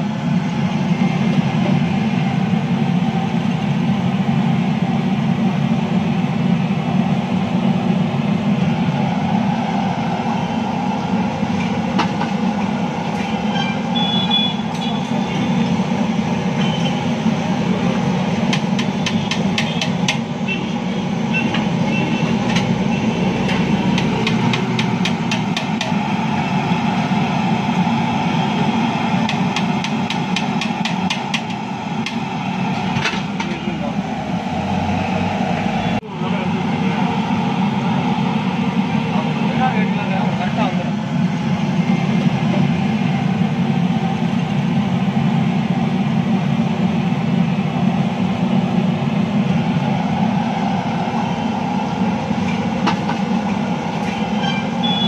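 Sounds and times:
low rumbling noise: 31.1s - 54.9s.

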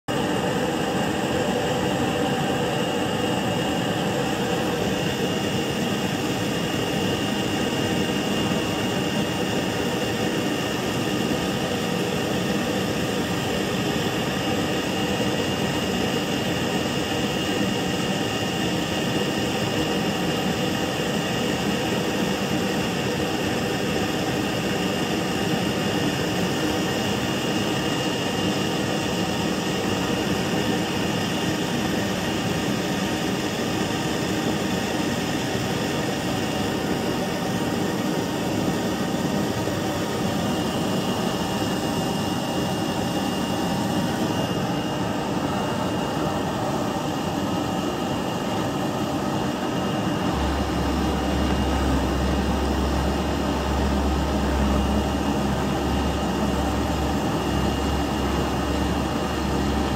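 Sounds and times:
thin high whine: 25.6s - 59.9s.

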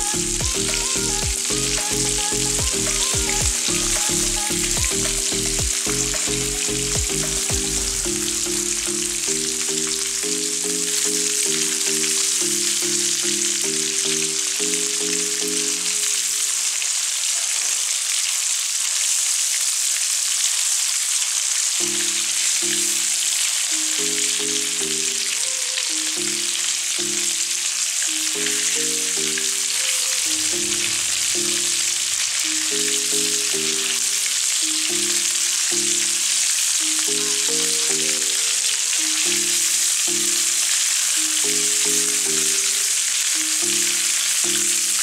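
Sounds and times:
soft low background music: 0.0s - 16.4s.

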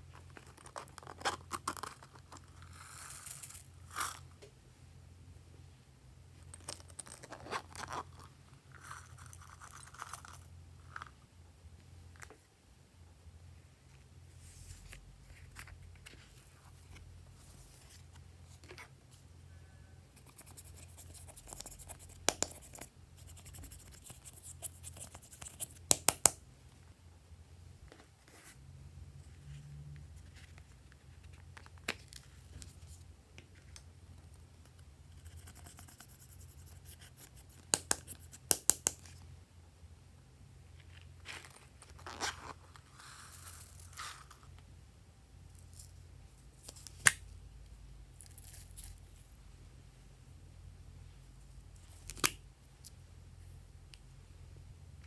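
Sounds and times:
brush scraping eyeshadow powder: 20.2s - 25.8s, 35.1s - 38.4s.

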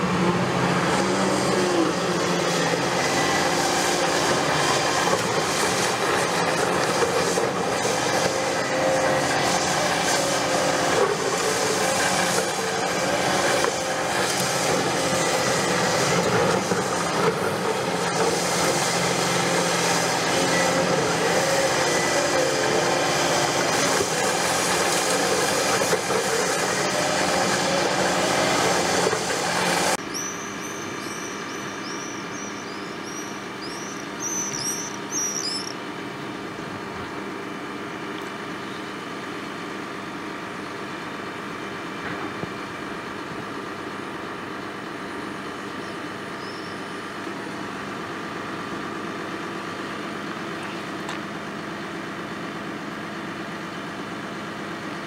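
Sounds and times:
excavator drum grinding concrete: 0.0s - 31.5s
excavator engine: 0.0s - 55.0s
bird chirping: 30.1s - 35.8s.

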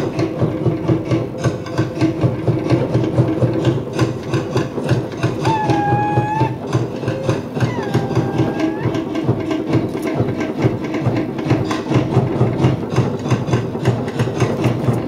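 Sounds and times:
drum ensemble fast beat: 4.2s - 14.8s.

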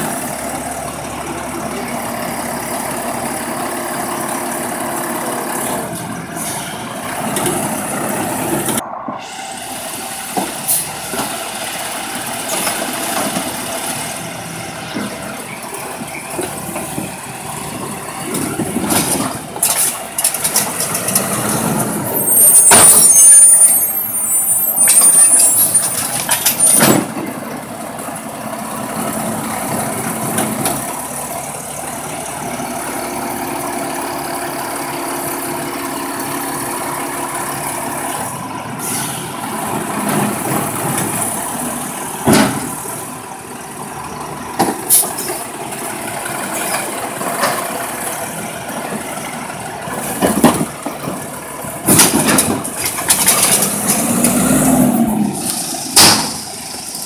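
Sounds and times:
garbage truck engine running: 0.0s - 57.0s
trash cart clanking: 14.8s - 28.2s, 39.6s - 43.2s, 44.5s - 57.0s.

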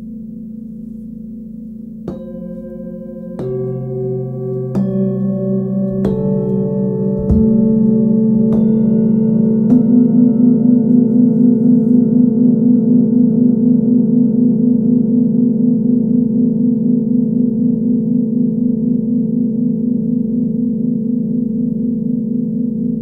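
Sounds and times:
singing bowls struck with mallet: 2.1s - 11.6s.

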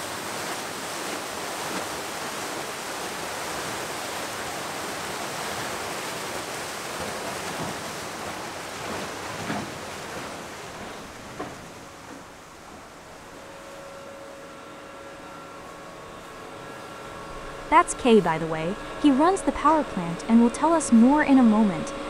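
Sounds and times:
water rushing through screw turbine: 0.0s - 22.0s
soft knocks: 9.4s - 12.9s.

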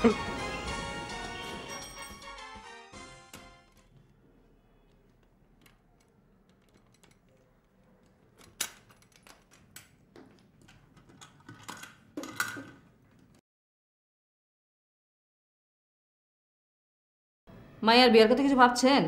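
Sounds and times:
key clicking in padlock: 4.8s - 12.0s
steel lid clattering: 10.8s - 12.9s.

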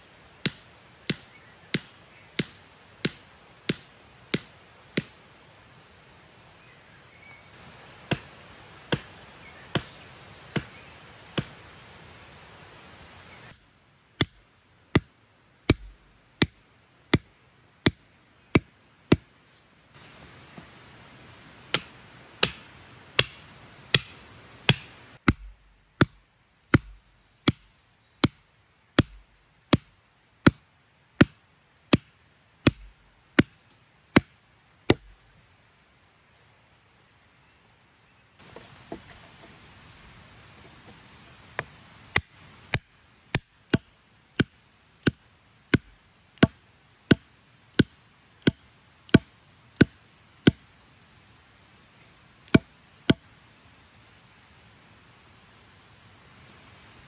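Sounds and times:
hammering wooden stake: 0.4s - 5.2s, 8.1s - 8.3s, 8.9s - 9.1s, 9.7s - 9.9s, 10.5s - 10.7s, 13.5s - 15.1s, 15.7s - 19.3s, 21.7s - 35.3s, 41.6s - 50.7s, 52.5s - 53.3s
metallic ring of striking tool: 26.8s - 27.6s, 32.0s - 33.6s, 42.8s - 45.2s.

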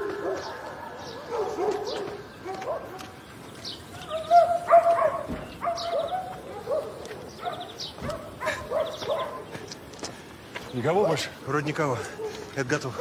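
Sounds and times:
dog barking: 0.0s - 3.2s, 4.0s - 9.6s, 12.0s - 13.0s.

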